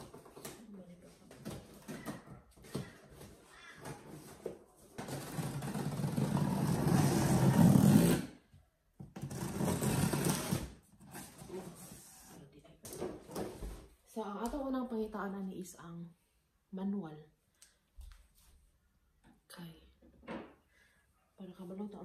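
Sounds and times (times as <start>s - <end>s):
packing tape ripping off cardboard: 5.0s - 8.4s, 9.2s - 11.4s.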